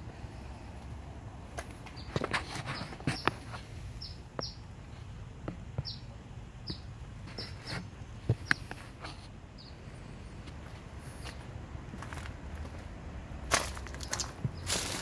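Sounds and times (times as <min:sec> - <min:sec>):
small bird chirping: 0:01.9 - 0:04.7, 0:05.8 - 0:07.7, 0:08.3 - 0:08.8, 0:09.5 - 0:09.9, 0:13.9 - 0:15.0.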